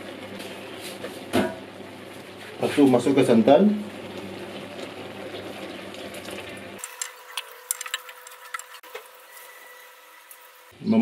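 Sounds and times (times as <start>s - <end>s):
sizzling in pot: 0.0s - 10.8s
liquid pouring into pot: 3.9s - 8.9s.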